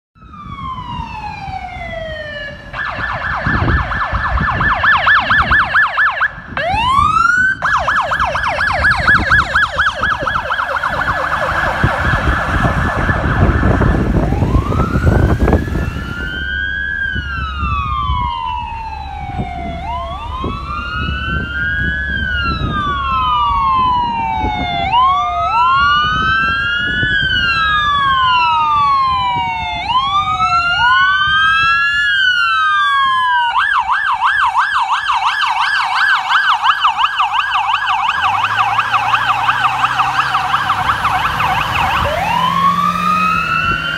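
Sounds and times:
police siren yelp and wail: 0.2s - 43.9s
second wail siren: 0.2s - 43.9s
vehicle rumbling past: 6.6s - 29.4s, 35.6s - 43.9s.

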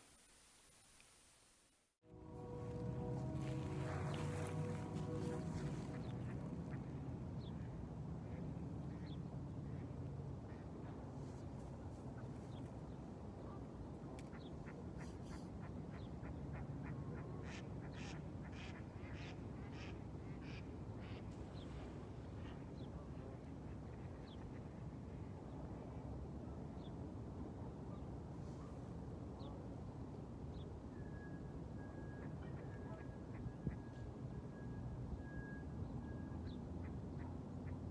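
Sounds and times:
low outdoor rumble: 2.1s - 17.6s.

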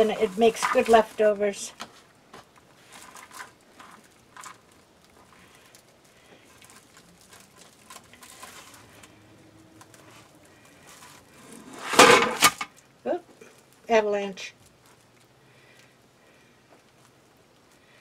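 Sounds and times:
plastic mesh rustling: 0.0s - 12.8s.

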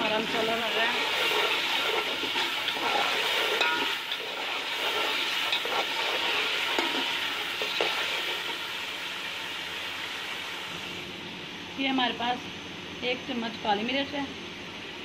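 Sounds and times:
food sizzling in oil: 0.0s - 11.1s.

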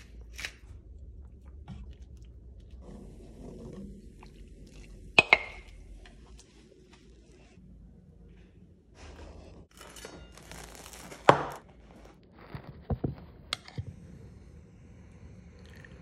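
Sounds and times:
toasted bread crackling and tearing: 9.8s - 11.6s.

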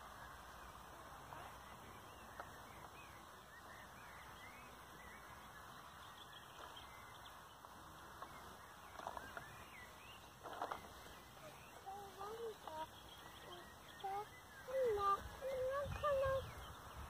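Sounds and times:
faint high bird calls: 8.1s - 17.0s.

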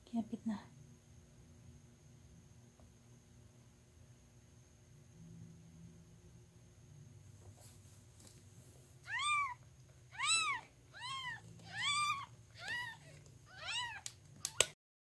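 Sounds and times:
newborn kitten mewing: 9.0s - 14.8s.

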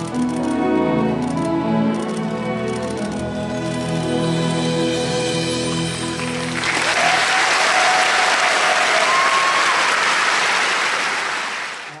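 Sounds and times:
audience applause: 6.2s - 12.0s.

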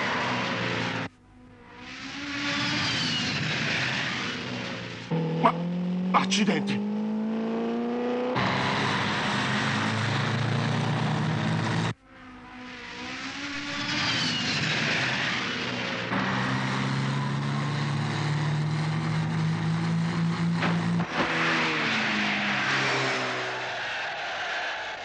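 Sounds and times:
cartoon race car engine: 0.0s - 25.0s
rushing whoosh with falling whistles: 1.9s - 4.5s, 13.0s - 15.8s, 21.6s - 25.0s.

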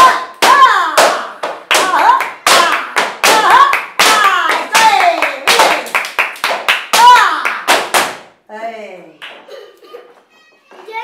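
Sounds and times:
people clapping in rhythm: 0.0s - 8.4s.

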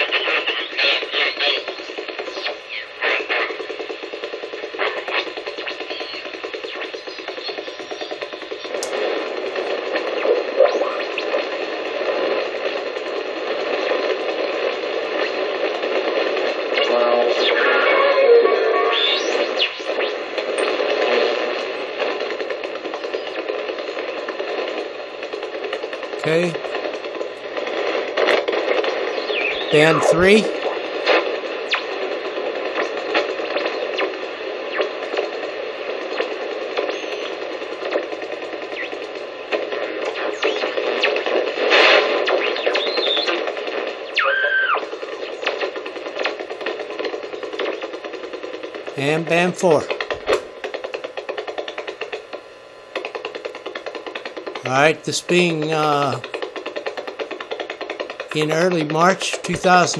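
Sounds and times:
sweeping radio whistles: 0.0s - 8.8s, 16.8s - 20.3s, 28.9s - 30.5s, 35.8s - 37.5s, 39.8s - 45.6s
sliding radio whistles: 0.0s - 24.2s, 28.6s - 50.4s
radio static hiss: 0.0s - 59.9s.

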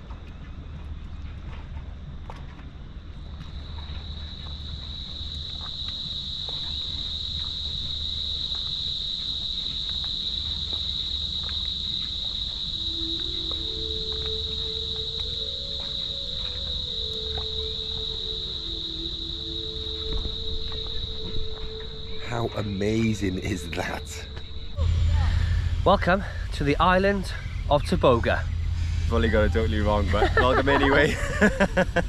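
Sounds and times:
high-pitched insect buzz: 3.6s - 32.0s
low rumble: 6.6s - 32.0s.

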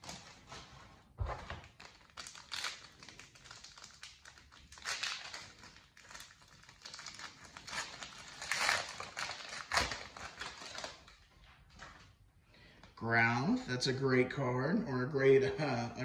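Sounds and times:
foil pack crinkling and tearing: 1.4s - 12.1s.

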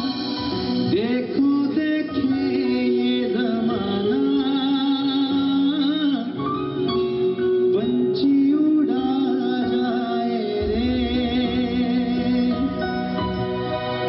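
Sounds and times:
live band music: 0.0s - 14.0s
deep bass: 10.6s - 14.0s.

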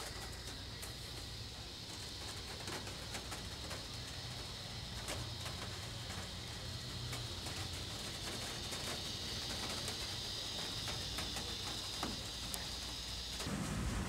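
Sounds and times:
faint ticks: 0.0s - 13.5s
insect chorus: 0.0s - 14.0s
low rumble: 13.4s - 14.0s.

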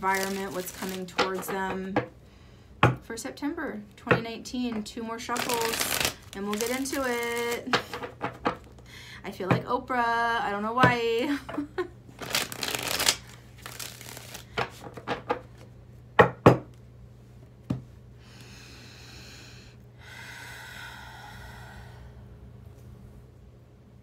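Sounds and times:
cards shuffling: 0.0s - 1.8s, 5.3s - 8.8s, 12.2s - 15.3s
cards knocking: 0.2s - 2.1s, 13.8s - 15.6s.

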